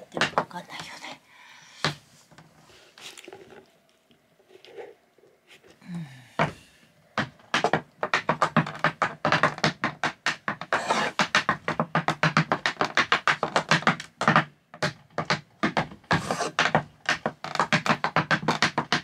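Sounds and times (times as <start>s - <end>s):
tap shoes on wooden board: 0.2s - 1.0s, 7.2s - 19.0s.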